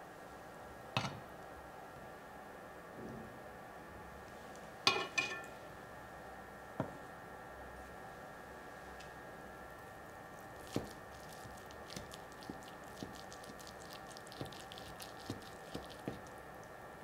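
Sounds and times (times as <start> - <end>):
crust crackling: 10.4 - 16.7.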